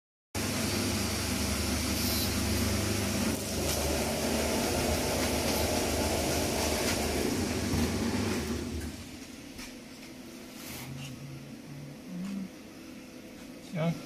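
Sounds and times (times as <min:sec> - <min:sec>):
die-cutting machine humming: 0:00.4 - 0:09.5.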